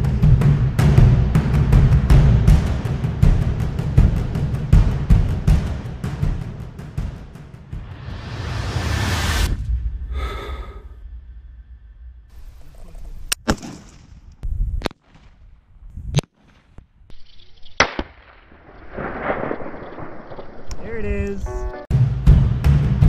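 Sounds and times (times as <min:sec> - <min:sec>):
low rumble: 0:07.7 - 0:13.4, 0:18.5 - 0:22.6
rifle shots: 0:13.4 - 0:15.3, 0:17.8 - 0:20.7.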